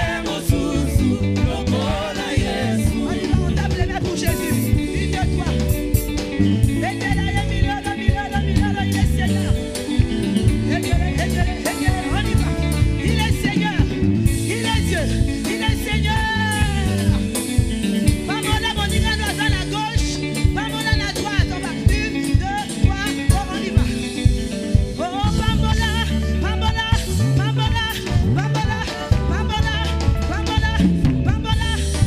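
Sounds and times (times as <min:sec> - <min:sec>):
person singing: 0:00.0 - 0:05.9, 0:06.6 - 0:17.5, 0:24.9 - 0:32.0
live band playing upbeat song: 0:00.0 - 0:32.0.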